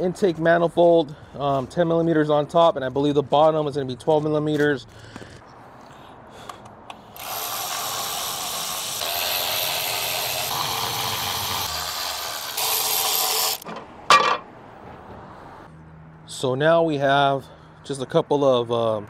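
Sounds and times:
electric ratchet whirring: 0:06.9 - 0:13.7.

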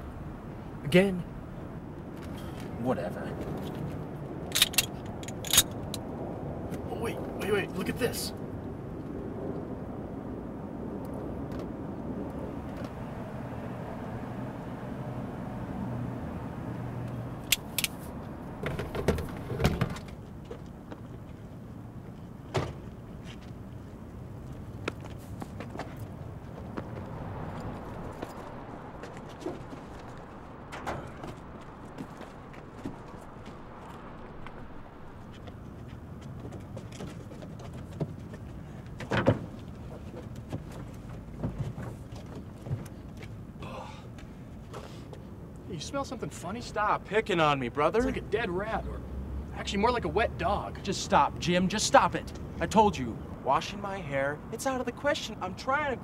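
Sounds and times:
low outdoor hum: 0:00.0 - 0:56.0
car doors opening: 0:27.5 - 0:34.2.

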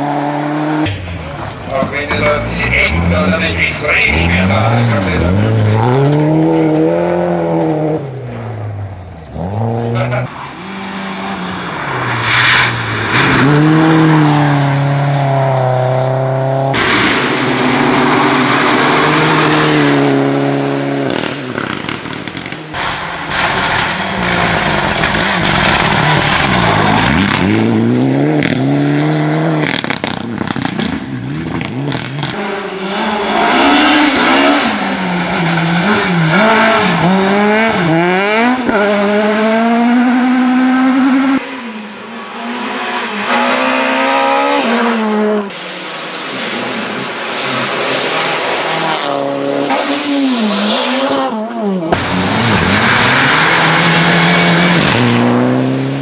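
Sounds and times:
rally car engines revving: 0:00.0 - 0:56.0.

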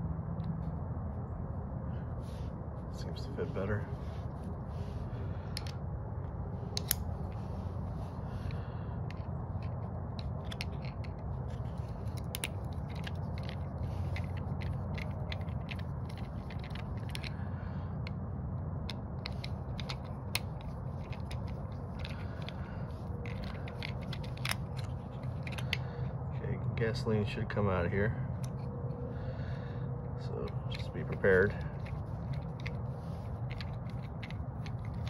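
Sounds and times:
steady low hum: 0:00.0 - 0:35.0
screwdriver clicks and scrapes: 0:06.7 - 0:07.6, 0:08.4 - 0:17.4, 0:18.9 - 0:25.8, 0:30.4 - 0:35.0.

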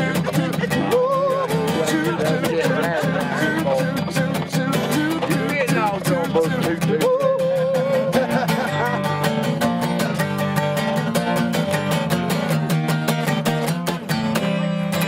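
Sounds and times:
person singing: 0:00.0 - 0:11.2
acoustic guitar strumming: 0:00.0 - 0:15.0.

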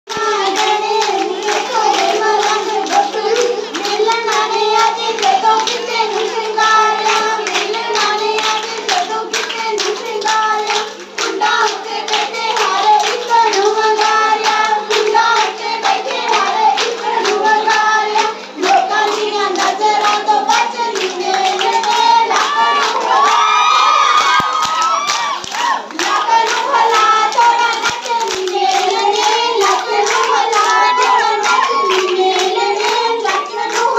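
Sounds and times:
girls singing folk song: 0:00.1 - 0:23.6, 0:25.7 - 0:33.9
rhythmic hand clapping: 0:00.1 - 0:33.9.

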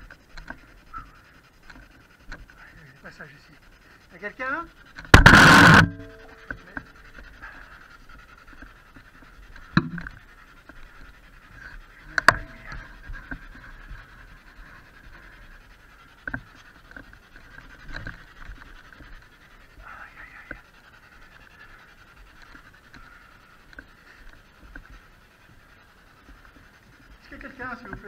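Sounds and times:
fluttering radio static hiss: 0:00.0 - 0:28.0
sharp clicks: 0:04.8 - 0:07.4.

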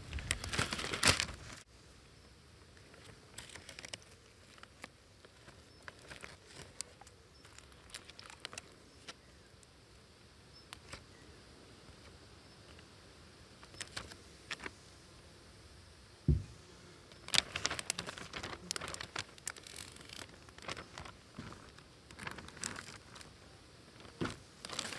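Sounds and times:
small clicks and rustles: 0:00.1 - 0:01.6, 0:02.7 - 0:09.7, 0:10.6 - 0:11.1, 0:13.6 - 0:14.8, 0:17.1 - 0:24.9
plastic bag crinkling: 0:00.2 - 0:01.6, 0:03.3 - 0:08.8, 0:17.2 - 0:23.3, 0:24.0 - 0:24.9.

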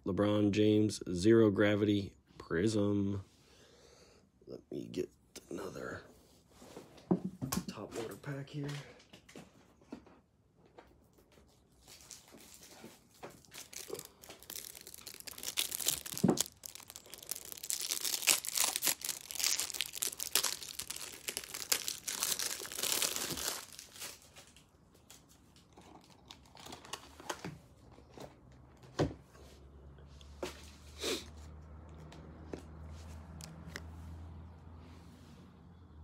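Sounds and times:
cellophane wrapper crinkling and tearing: 0:11.7 - 0:28.0.

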